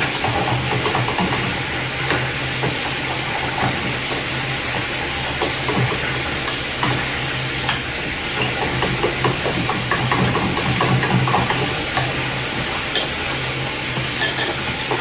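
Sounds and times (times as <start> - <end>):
food sizzling in a pan: 0.0 - 15.0
utensil clicking against pan: 0.0 - 15.0.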